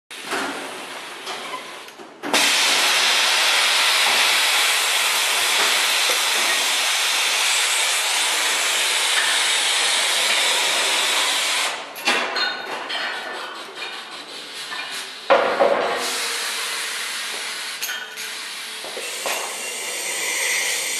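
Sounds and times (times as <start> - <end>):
loud steady air hiss: 0.8 - 11.8, 15.9 - 20.9.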